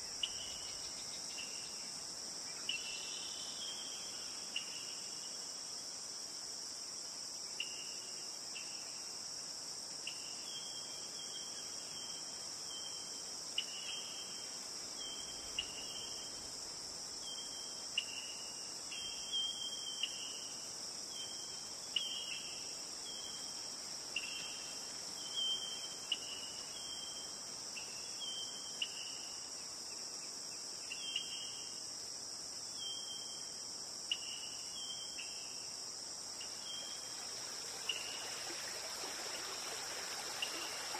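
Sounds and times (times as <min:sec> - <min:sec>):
high-pitched insect chorus: 0:00.0 - 0:40.9.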